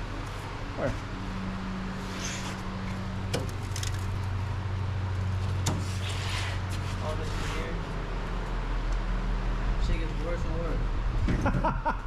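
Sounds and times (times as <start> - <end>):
hand scraping sheet metal: 5.7 - 7.8.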